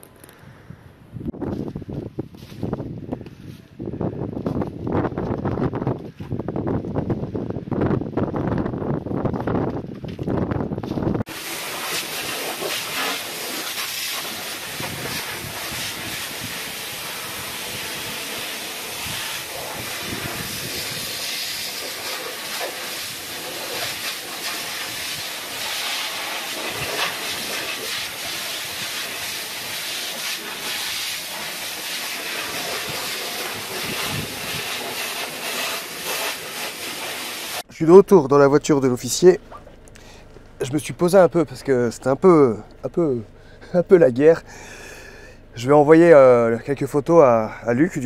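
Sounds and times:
water spattering on debris: 0:11.3 - 0:37.6
fire hose spraying water: 0:11.3 - 0:37.7.

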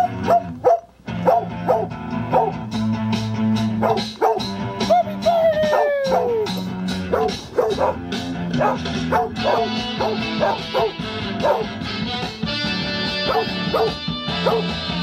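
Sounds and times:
dog barking and yipping: 0:00.0 - 0:02.6, 0:03.7 - 0:04.6, 0:05.4 - 0:11.8, 0:13.2 - 0:14.8
song with guitar and horns: 0:00.0 - 0:15.0.

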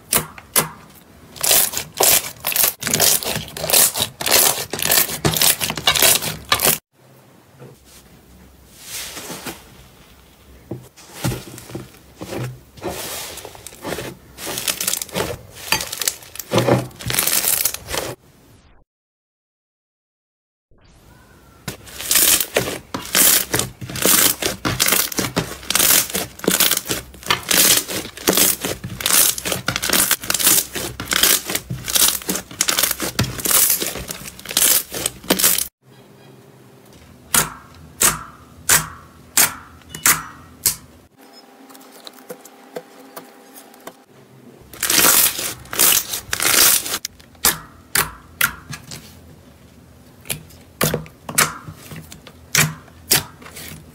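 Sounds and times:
slime crackling and popping: 0:01.4 - 0:06.8, 0:22.0 - 0:35.7, 0:44.8 - 0:47.6.

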